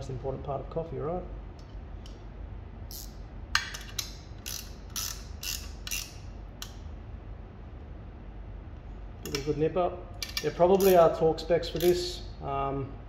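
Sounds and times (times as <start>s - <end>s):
ratchet wrench clicking: 2.9s - 6.8s, 10.2s - 12.1s.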